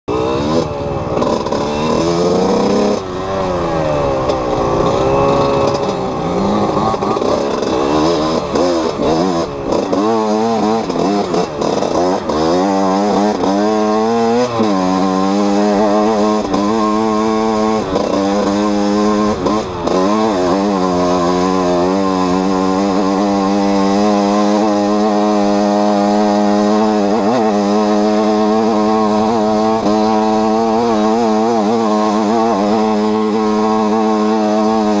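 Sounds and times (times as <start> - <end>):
motorcycle engine revving: 0.1 - 35.0.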